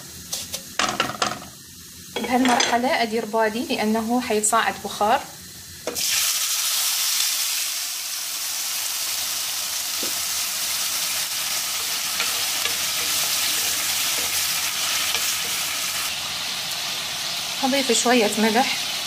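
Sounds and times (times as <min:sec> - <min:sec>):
water hissing in hot pan: 0:00.0 - 0:19.0
spatula stirring: 0:11.8 - 0:16.0.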